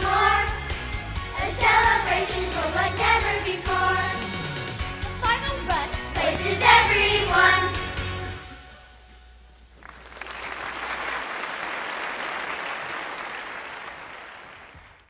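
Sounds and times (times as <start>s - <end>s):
children's song music: 0.0s - 9.1s
audience applauding: 9.8s - 15.0s.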